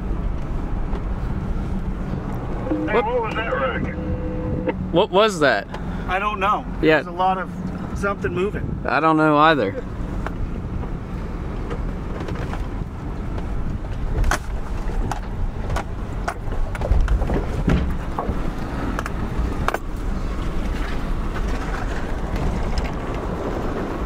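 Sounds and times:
engine and tyres rumbling: 0.0s - 24.0s.

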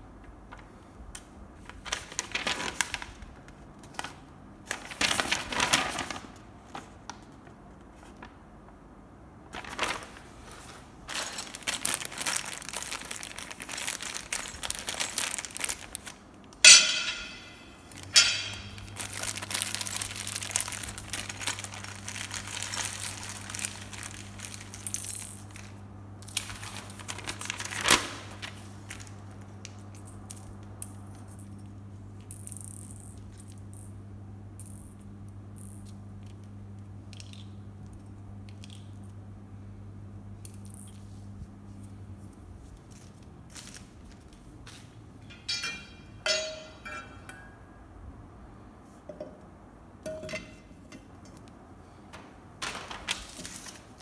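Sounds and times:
paper rustling: 1.6s - 8.4s, 9.5s - 16.2s, 26.4s - 29.2s, 52.2s - 54.0s
plastic bag crinkling: 1.7s - 7.0s, 9.5s - 29.3s, 52.5s - 54.0s
steady low hum: 3.1s - 54.0s
small parts on hard floor: 9.6s - 26.9s, 37.1s - 39.1s, 42.6s - 47.6s, 50.0s - 54.0s
plastic bag ripping: 11.1s - 16.2s, 18.8s - 24.8s, 26.3s - 28.6s.

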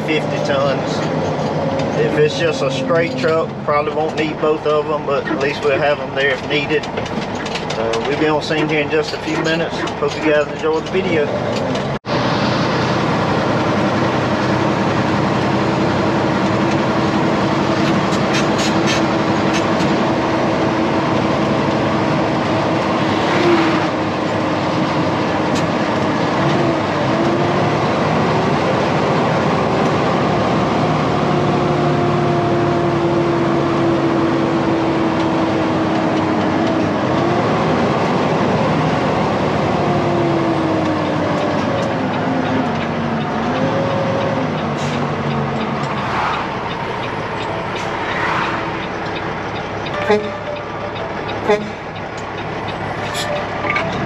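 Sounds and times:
truck engine and road noise: 0.0s - 54.0s.

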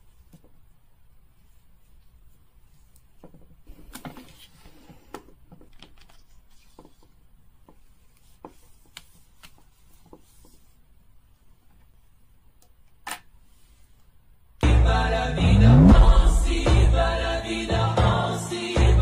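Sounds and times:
soft rustling of toy doll: 0.0s - 12.6s, 13.3s - 14.3s.

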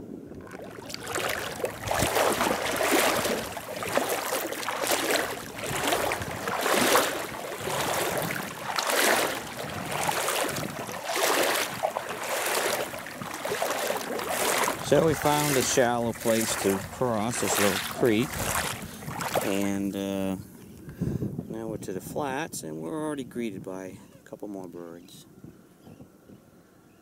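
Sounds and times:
boots sloshing through water: 0.3s - 19.9s.

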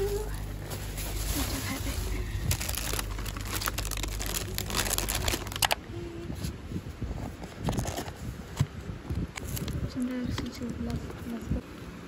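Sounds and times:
plastic crinkling: 0.0s - 5.8s.

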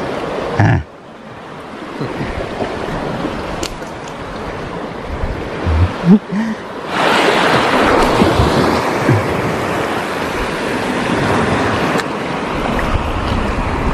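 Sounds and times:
surf on rocky shore: 0.0s - 13.9s
wind on microphone: 4.6s - 6.2s, 7.5s - 13.9s.

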